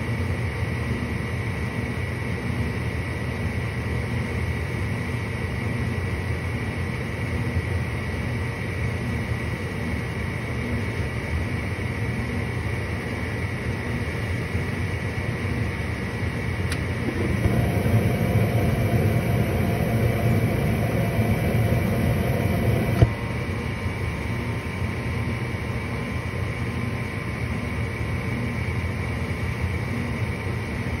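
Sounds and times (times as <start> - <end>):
furnace inducer motor humming: 7.1 - 31.0
gas burners whooshing: 16.6 - 23.7
gas valve click: 16.7 - 17.7.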